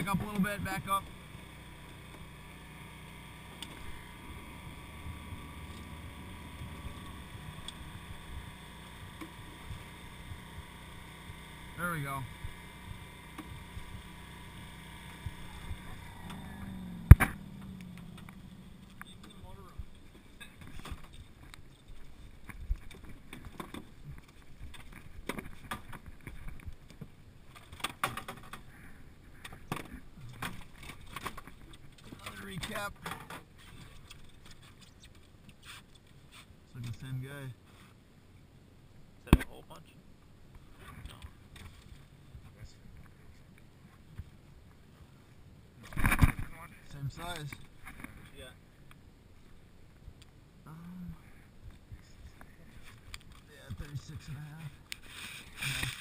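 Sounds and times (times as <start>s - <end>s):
boat motor droning: 0.0s - 21.8s
low steady rumble: 0.0s - 27.8s, 28.6s - 56.0s.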